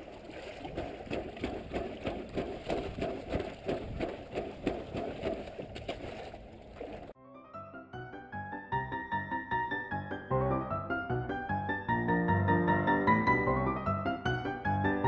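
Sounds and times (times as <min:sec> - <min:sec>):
water washing: 0:00.0 - 0:07.2.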